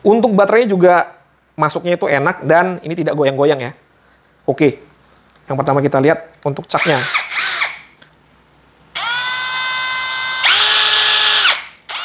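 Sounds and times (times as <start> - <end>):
cordless drill motor whine: 6.8 - 7.8, 9.0 - 12.0.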